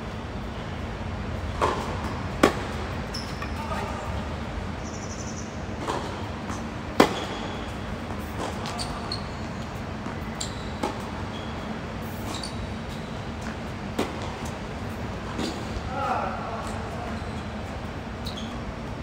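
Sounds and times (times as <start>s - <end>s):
tennis ball hit by rackets: 1.6s - 2.8s, 7.0s - 7.4s
tennis shoes squeaking: 1.6s - 4.0s, 4.8s - 13.7s, 15.3s - 15.8s, 16.7s - 18.8s.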